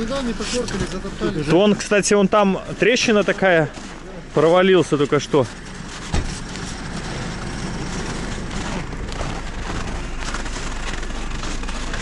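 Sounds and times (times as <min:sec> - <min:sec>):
footsteps on snowy ice: 0:00.0 - 0:12.0
vehicle engine humming: 0:00.0 - 0:12.0
thump: 0:06.1 - 0:06.4.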